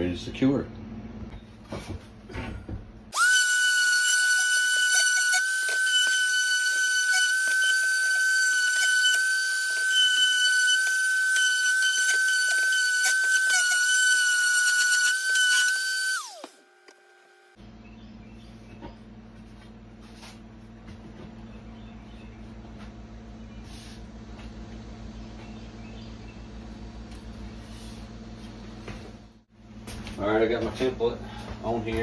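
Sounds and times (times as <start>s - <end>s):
electric orbital sander whining: 3.2s - 17.5s.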